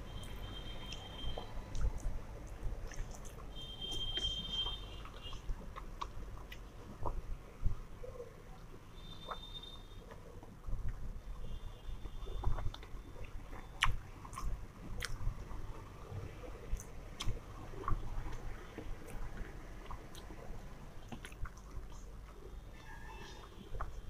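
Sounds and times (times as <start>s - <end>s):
person chewing food: 0.1s - 11.0s, 12.0s - 22.5s, 23.2s - 24.0s
wet mouth clicks: 0.9s - 3.4s, 12.4s - 15.2s, 21.0s - 22.4s.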